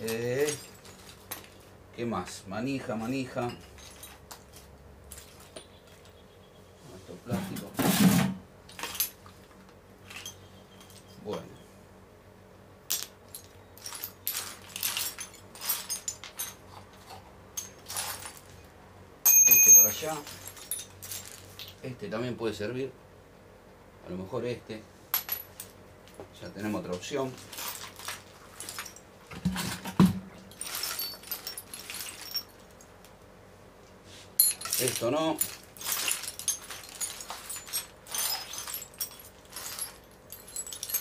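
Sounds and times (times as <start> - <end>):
metal parts clinking and rattling: 0.0 - 1.8, 2.9 - 6.2, 7.9 - 11.6, 12.9 - 18.7, 19.3 - 21.8, 25.1 - 26.2, 27.0 - 33.2, 34.4 - 41.0
metal bolts clinking: 19.3 - 21.8, 30.5 - 32.9, 34.4 - 41.0.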